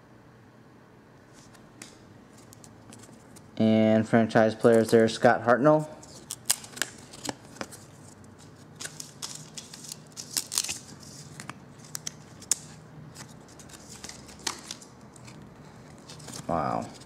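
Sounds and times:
trading cards snapping and rustling: 6.1s - 7.8s, 8.4s - 17.0s.

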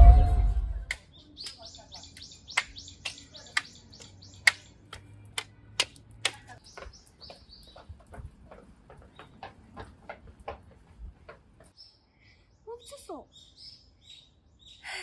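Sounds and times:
small birds chirping: 1.0s - 9.9s, 11.6s - 15.0s.

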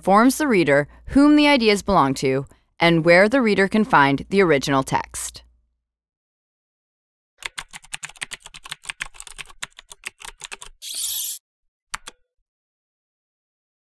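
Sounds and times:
rapid keyboard typing: 7.4s - 11.2s.

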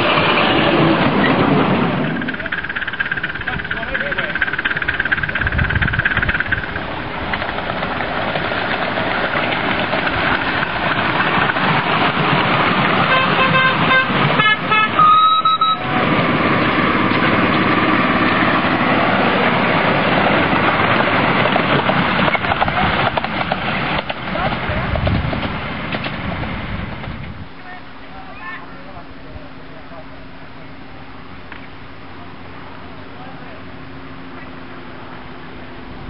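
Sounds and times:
small train running on track: 0.0s - 36.0s
train horn tooting: 13.0s - 16.0s.

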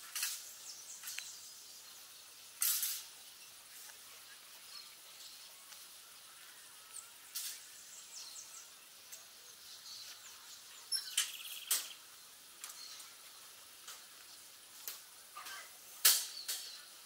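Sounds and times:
small birds chirping: 0.0s - 17.0s
sharp clicks: 11.1s - 12.0s.

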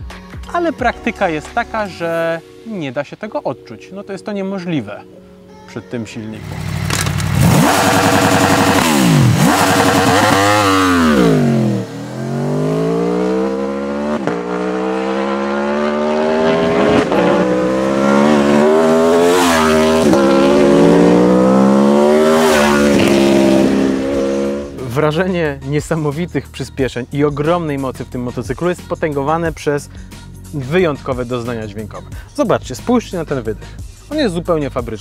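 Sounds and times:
motorcycle engine accelerating: 6.4s - 25.1s.

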